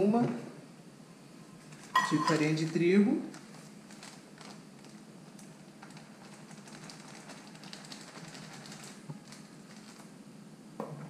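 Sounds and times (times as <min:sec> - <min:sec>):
steady low hum: 0:00.0 - 0:11.0
plastic bag crinkling: 0:01.6 - 0:10.2.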